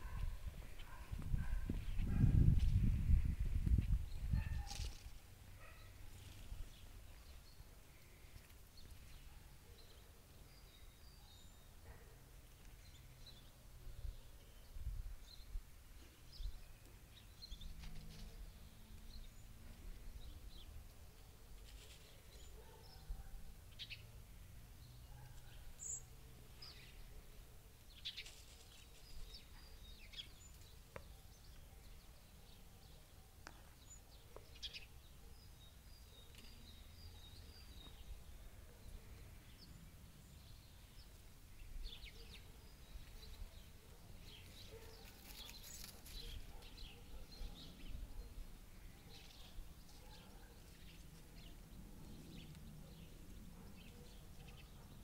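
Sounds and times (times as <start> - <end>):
songbird chirps: 3.7 - 55.0.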